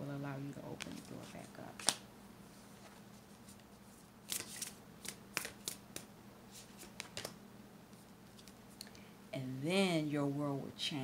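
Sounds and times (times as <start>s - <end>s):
faint steady hum: 0.0s - 11.0s
cards clicking and rustling: 1.8s - 2.0s, 4.2s - 7.4s, 8.3s - 8.6s.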